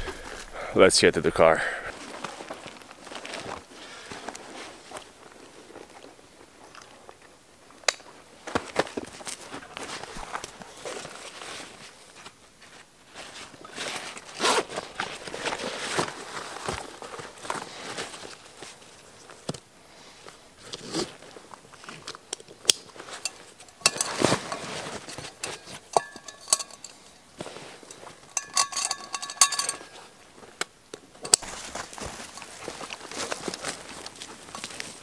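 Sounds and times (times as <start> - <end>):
straps and buckles clicking: 0.0 - 0.7, 21.8 - 30.0, 30.6 - 35.0
light metallic clinking: 23.2 - 30.1.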